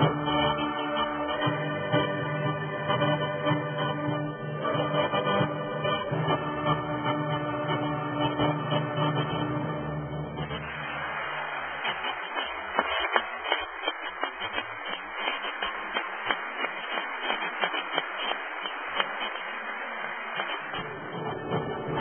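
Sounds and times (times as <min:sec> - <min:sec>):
audience applauding: 0:10.4 - 0:22.0.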